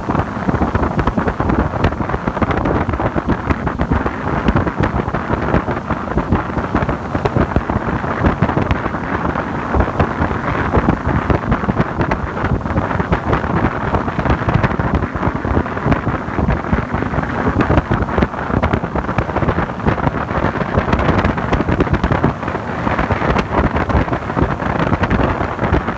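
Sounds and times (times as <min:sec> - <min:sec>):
wind buffeting microphone: 0:00.0 - 0:25.9.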